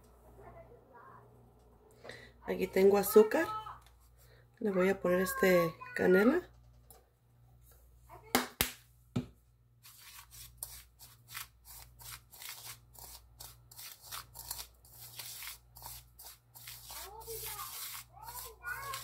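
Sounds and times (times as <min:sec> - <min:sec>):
fingers rubbing sugar in bowl: 0:09.8 - 0:19.0.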